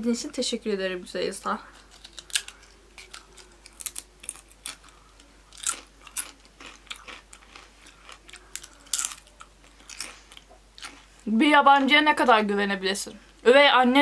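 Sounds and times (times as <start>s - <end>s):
crunchy chips being chewed: 1.8s - 11.2s.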